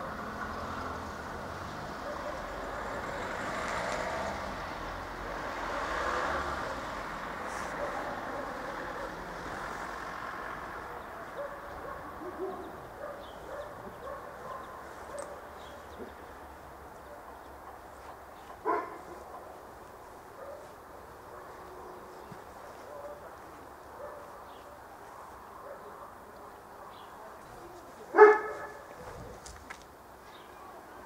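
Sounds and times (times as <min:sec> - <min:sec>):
vehicle passing: 0:00.0 - 0:26.4
dog barking: 0:02.0 - 0:02.6, 0:07.5 - 0:09.3, 0:11.2 - 0:15.8, 0:18.6 - 0:19.6, 0:20.4 - 0:29.4.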